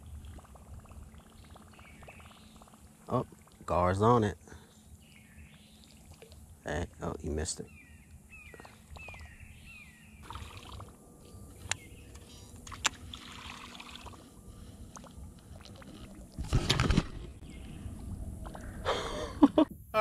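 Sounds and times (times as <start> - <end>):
water splashing around kayak: 12.6 - 18.6.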